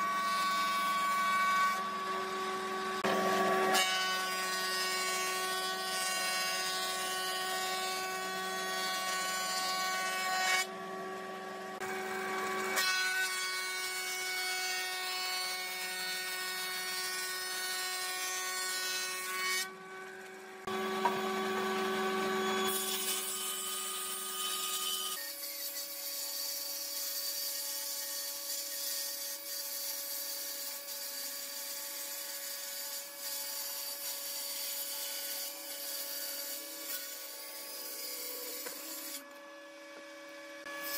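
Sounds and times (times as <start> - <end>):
woodworking machine motor hum: 1.5 - 3.9, 9.0 - 12.8, 19.7 - 23.0, 36.6 - 40.8.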